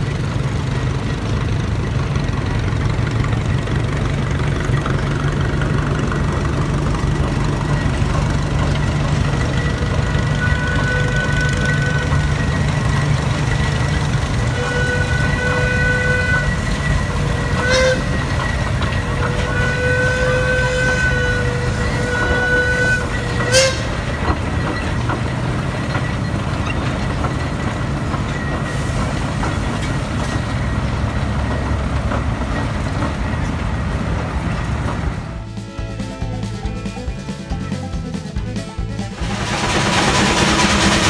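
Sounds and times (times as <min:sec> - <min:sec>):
steam engine rumbling: 0:00.0 - 0:41.0
steam whistle toots: 0:06.1 - 0:27.4.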